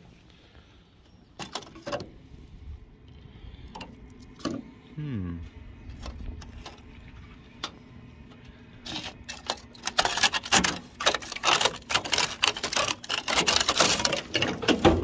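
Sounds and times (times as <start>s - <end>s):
rusted steel crackling and snapping: 1.4s - 2.2s, 3.6s - 4.6s, 5.8s - 15.0s.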